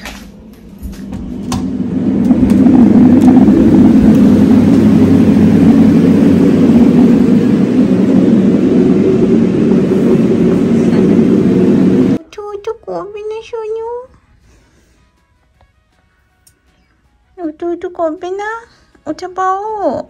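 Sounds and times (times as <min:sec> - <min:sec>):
appliance low rushing noise: 0:00.0 - 0:12.2.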